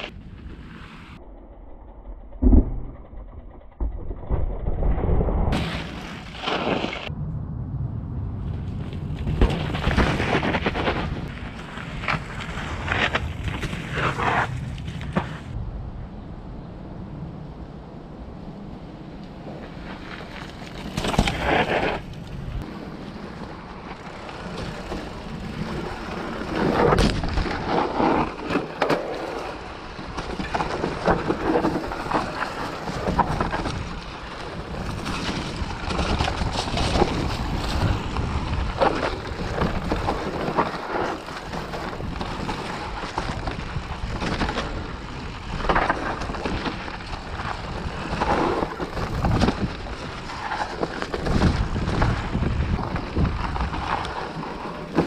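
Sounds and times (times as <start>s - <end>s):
bike knocks and rattles: 20.4s - 22.3s, 24.4s - 55.0s
wind on microphone: 32.8s - 55.0s.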